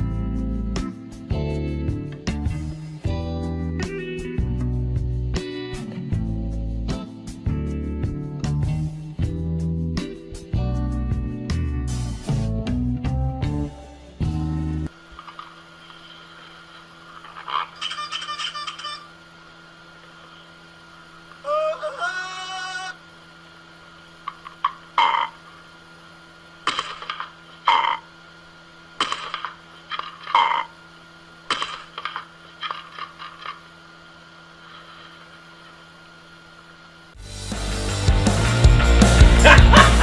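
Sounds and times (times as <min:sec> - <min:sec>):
parrot squawking: 0:17.3 - 0:19.1, 0:24.9 - 0:25.4.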